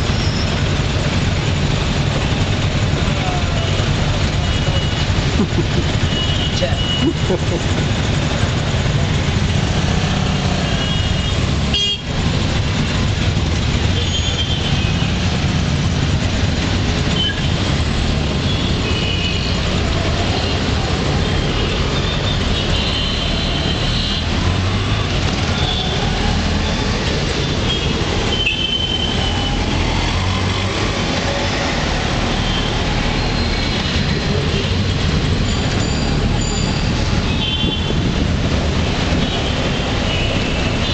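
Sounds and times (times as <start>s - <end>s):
auto-rickshaw engine rumble: 0.0s - 40.9s
traffic horns beeping: 5.9s - 7.5s, 10.5s - 12.3s, 13.8s - 15.3s, 17.0s - 24.4s, 25.3s - 29.7s, 32.3s - 38.1s, 39.0s - 40.9s.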